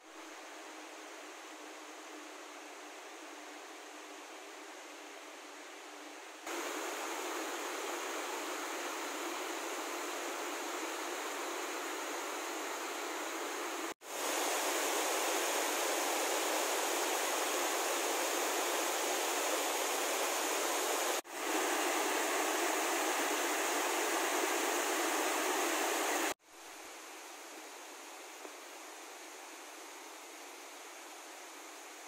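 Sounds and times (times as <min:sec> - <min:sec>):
faint outdoor hiss: 0:00.0 - 0:32.0
water rushing over waterfall: 0:06.5 - 0:26.4.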